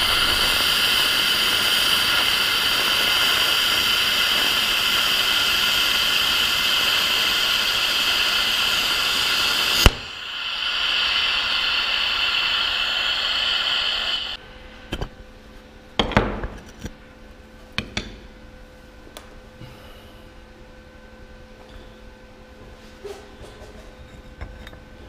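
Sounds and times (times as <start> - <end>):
welding arc hissing: 0.0 - 14.4.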